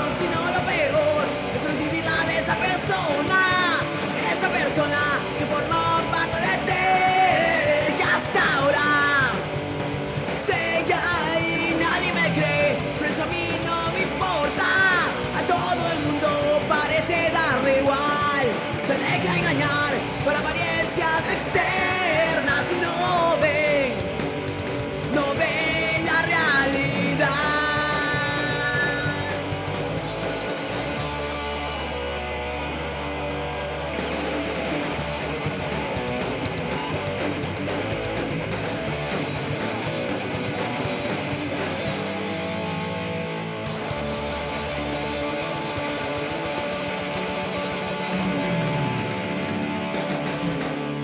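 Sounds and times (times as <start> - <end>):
person singing: 0.0 - 9.5, 25.0 - 29.6
punk rock band playing: 0.0 - 51.0.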